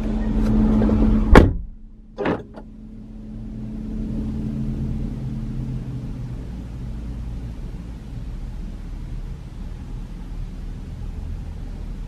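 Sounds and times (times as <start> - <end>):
low hum inside car: 0.0 - 12.0
car door shutting: 0.3 - 2.7.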